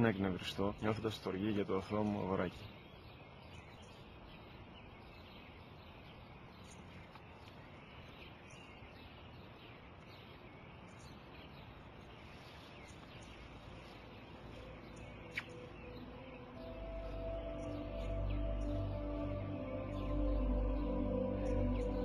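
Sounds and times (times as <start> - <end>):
small bird chirps: 0.0 - 22.0.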